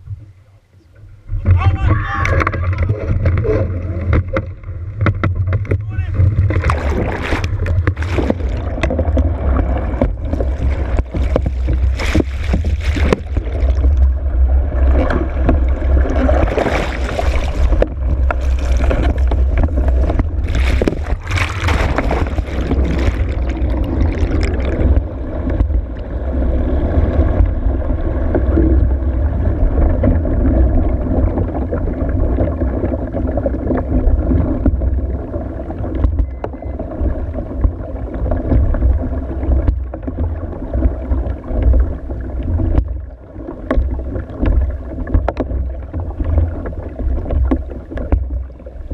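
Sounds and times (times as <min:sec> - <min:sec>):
underwater water churning rumble: 0:00.0 - 0:48.9
crackling bubbles: 0:02.2 - 0:48.9.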